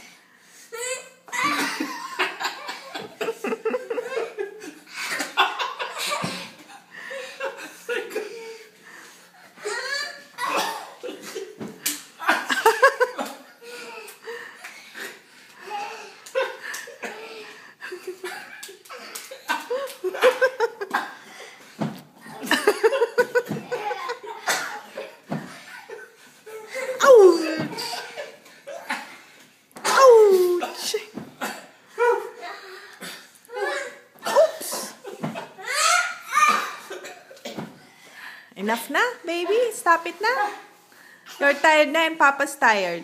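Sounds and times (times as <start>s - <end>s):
hearty laughter: 1.4s - 8.4s.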